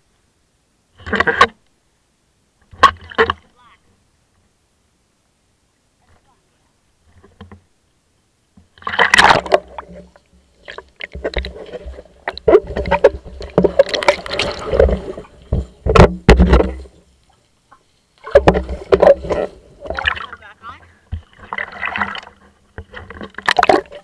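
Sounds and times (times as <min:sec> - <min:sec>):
underwater splashing and bubbling: 0:08.8 - 0:17.4, 0:18.2 - 0:20.5, 0:21.1 - 0:24.0
camera knocks and bumps: 0:15.5 - 0:16.8.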